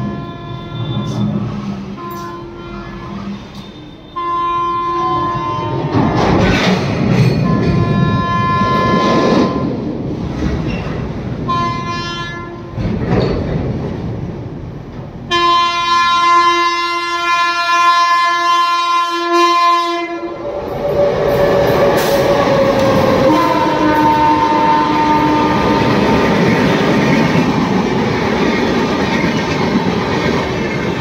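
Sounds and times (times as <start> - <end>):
locomotive horn blasts: 0.0 - 6.2, 7.4 - 9.8, 11.4 - 12.8, 15.3 - 20.4, 23.0 - 26.3
train passing rumble: 0.0 - 31.0
wheels clattering over rail joints: 5.7 - 11.5, 12.6 - 15.2.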